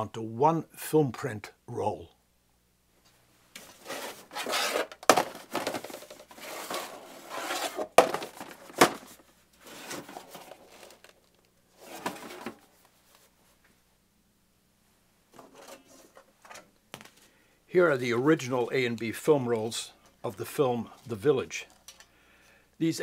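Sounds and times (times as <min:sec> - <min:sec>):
metal film cans scraping and clattering: 0:03.6 - 0:12.7, 0:15.3 - 0:16.7.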